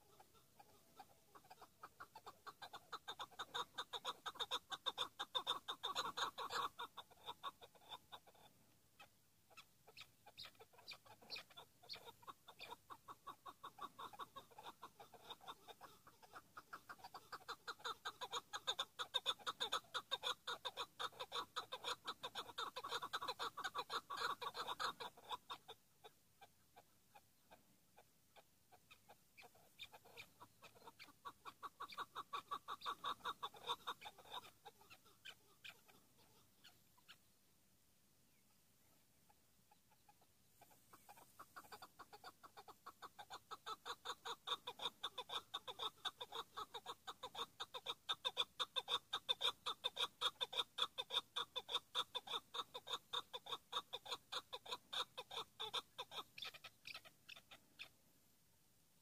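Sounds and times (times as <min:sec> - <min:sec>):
partridge clucking calls: 0:00.0 - 0:37.3, 0:38.8 - 0:58.0.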